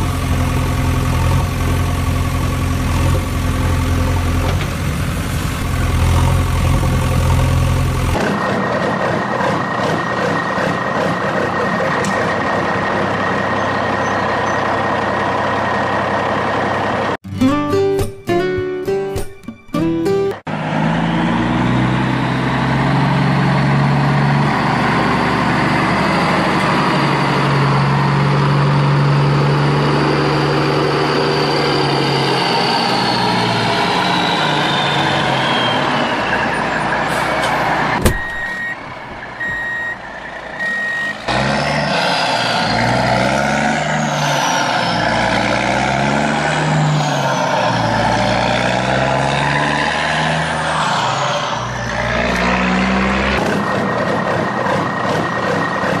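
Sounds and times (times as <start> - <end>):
truck engine running: 0.0 - 18.2, 20.0 - 56.0
reversing beeps: 38.1 - 38.8, 39.4 - 41.3.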